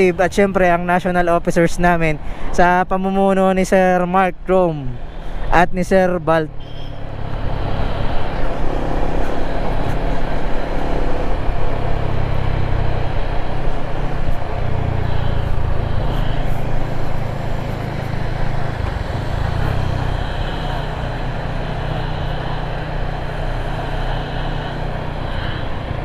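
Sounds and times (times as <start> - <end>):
road and wind noise: 0.0 - 26.0
motorcycle engine running: 7.0 - 26.0.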